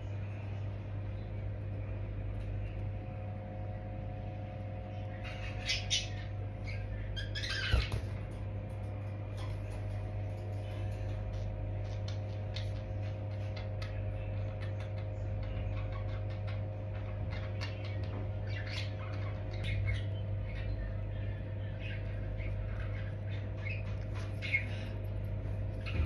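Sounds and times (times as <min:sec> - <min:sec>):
steady low hum: 0:00.0 - 0:26.0
budgerigars chirping: 0:04.9 - 0:08.1, 0:14.6 - 0:26.0.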